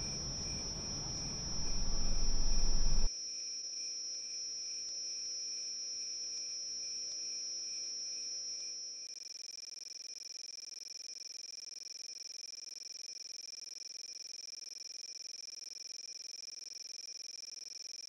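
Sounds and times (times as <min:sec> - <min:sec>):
low rumbling noise: 0:00.0 - 0:03.1
crickets trilling: 0:00.0 - 0:03.9.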